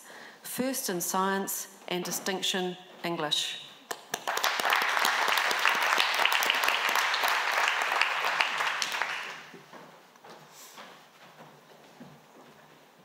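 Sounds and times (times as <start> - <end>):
audience clapping: 3.9 - 9.7.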